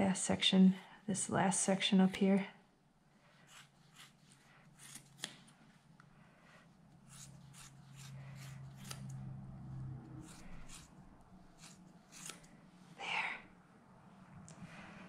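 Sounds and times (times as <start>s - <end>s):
scissors snipping wool: 3.5s - 5.5s, 7.0s - 9.3s, 10.2s - 12.6s.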